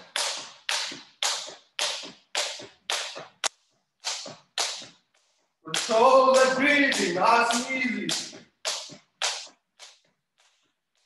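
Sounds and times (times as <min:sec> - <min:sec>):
skipping rope slapping floor: 0:00.0 - 0:11.0
person's voice: 0:05.7 - 0:08.2.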